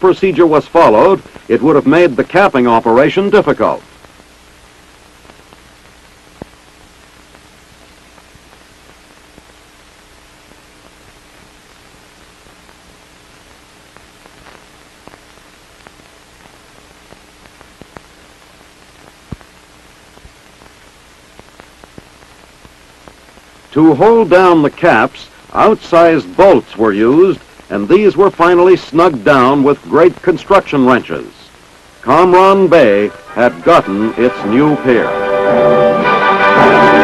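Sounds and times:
faint hum: 0.0s - 37.0s
film soundtrack hiss: 0.0s - 37.0s.

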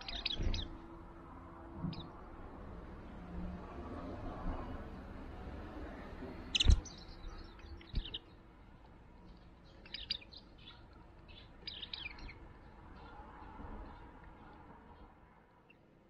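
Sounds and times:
birds chirping: 0.0s - 1.0s, 1.8s - 2.4s, 6.2s - 16.0s.

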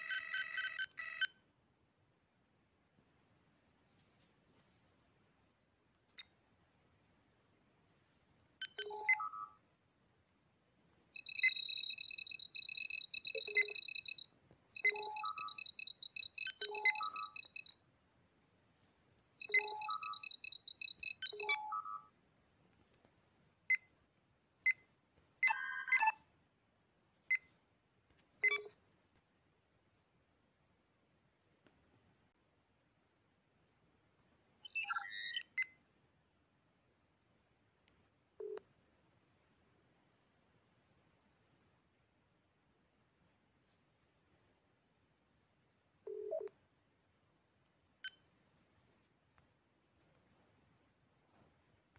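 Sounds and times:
computer interface chirps and beeps: 0.0s - 1.4s, 8.6s - 9.6s, 11.2s - 17.8s, 19.4s - 22.1s, 25.4s - 26.2s, 34.6s - 35.7s.

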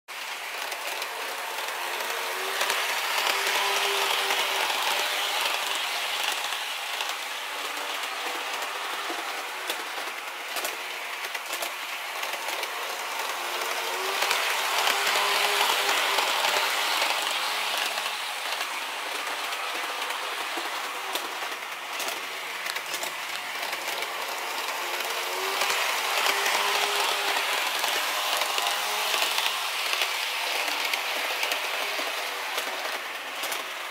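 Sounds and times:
model train rattling on track: 0.2s - 33.9s.

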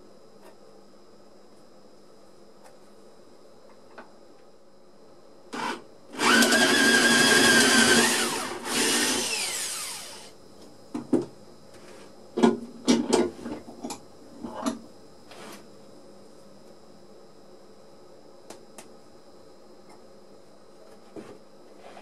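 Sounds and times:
cordless drill whirring: 5.6s - 10.3s.

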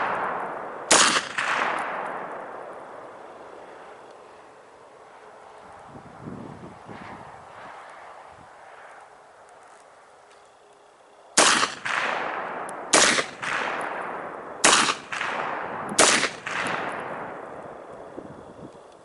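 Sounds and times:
gunshot echo: 0.0s - 2.8s, 11.4s - 17.5s
rifle shots: 0.0s - 3.1s, 11.4s - 17.6s.

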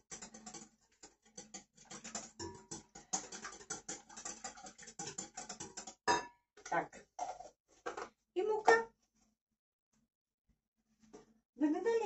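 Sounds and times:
utensil beating in glass bowl: 0.0s - 6.0s.

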